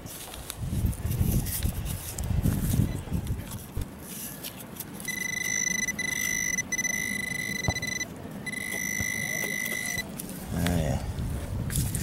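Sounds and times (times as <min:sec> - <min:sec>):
pinpointer high buzzing tone: 0:05.1 - 0:10.1.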